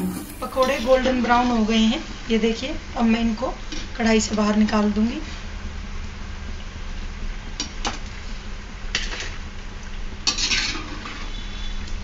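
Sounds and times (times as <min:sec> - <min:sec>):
food sizzling in deep fryer: 0:00.0 - 0:01.1
metal spoon scraping a pan: 0:10.3 - 0:11.4.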